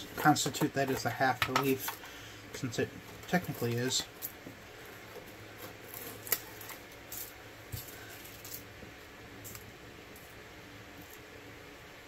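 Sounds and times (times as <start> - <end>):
faint steady hum: 0.0 - 12.0
dried leaves rustling: 2.6 - 8.7.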